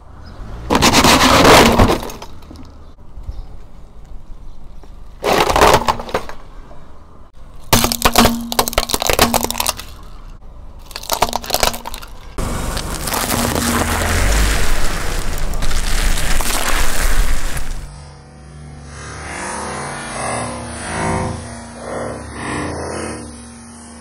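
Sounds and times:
tyre crushing hard plastic: 0:00.7 - 0:02.7, 0:05.2 - 0:06.4, 0:07.6 - 0:10.2, 0:10.8 - 0:17.9.

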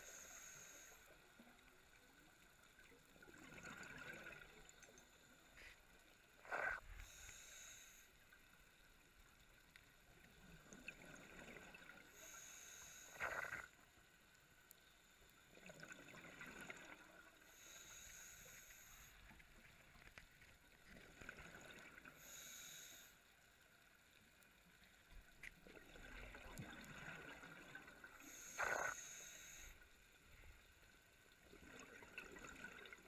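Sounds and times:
regulator hissing inhales: 0:00.0 - 0:01.2, 0:06.9 - 0:08.2, 0:12.1 - 0:13.6, 0:17.5 - 0:19.3, 0:22.2 - 0:23.3, 0:28.2 - 0:29.8
exhaled bubbles gurgling: 0:03.2 - 0:04.8, 0:10.4 - 0:12.2, 0:13.2 - 0:13.7, 0:15.5 - 0:17.4, 0:20.8 - 0:22.1, 0:25.6 - 0:29.0, 0:31.4 - 0:33.0.

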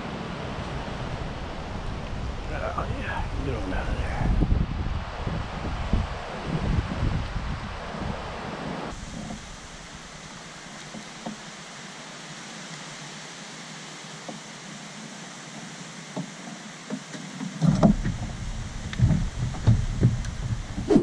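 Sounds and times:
outdoor background hiss: 0:00.0 - 0:21.0
wind buffeting microphone: 0:00.3 - 0:10.0, 0:17.6 - 0:21.0.

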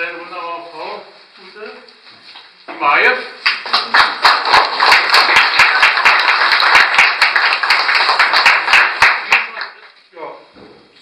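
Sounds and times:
audience applauding: 0:03.4 - 0:10.0
close hands clapping: 0:03.4 - 0:10.0.

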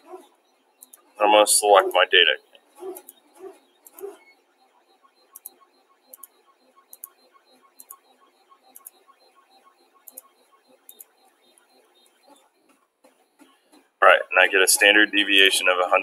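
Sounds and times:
computer mouse clicking: 0:00.8 - 0:01.1, 0:02.8 - 0:03.2, 0:03.8 - 0:04.2, 0:05.3 - 0:12.4.

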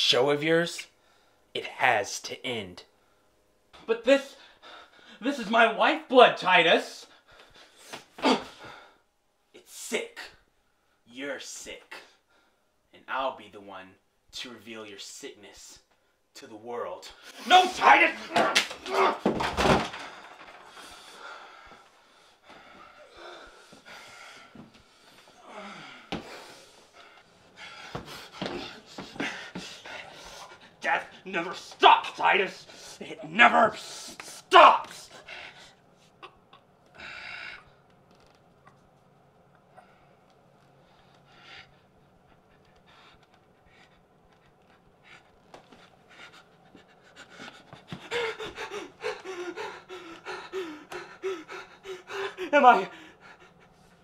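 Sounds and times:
man panting heavily: 0:20.2 - 0:30.8, 0:33.8 - 0:35.9, 0:41.2 - 0:54.0
voiced gasps: 0:45.0 - 0:54.0.

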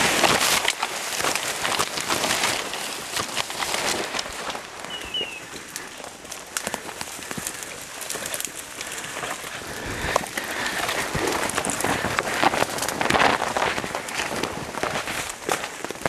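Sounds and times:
twigs crackling in undergrowth: 0:00.0 - 0:16.0
short high chirps: 0:04.9 - 0:05.4.

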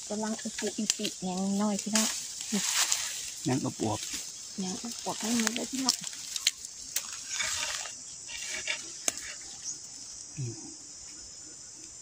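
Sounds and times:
hands rustling dry grass: 0:00.0 - 0:09.4
bamboo shoots snapping: 0:00.4 - 0:09.4.

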